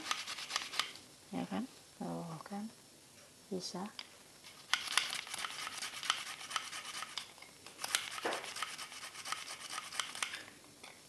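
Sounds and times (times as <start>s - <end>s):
garlic scraping on metal grater: 4.8s - 7.2s, 7.9s - 10.3s.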